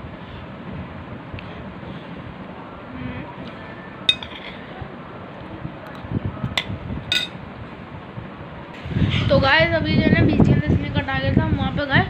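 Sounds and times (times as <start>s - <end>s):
low background noise: 0.0s - 12.0s
spoon clinking on a plate: 4.1s - 4.6s, 6.6s - 7.4s.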